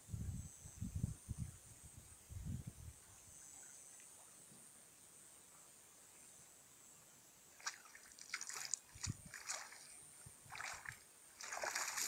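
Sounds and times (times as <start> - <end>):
water splashing and dripping: 7.6 - 12.0.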